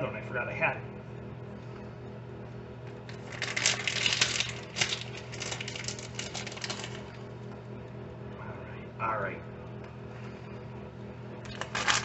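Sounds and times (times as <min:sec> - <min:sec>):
plastic bag crinkling: 0:03.1 - 0:07.2, 0:11.5 - 0:12.0.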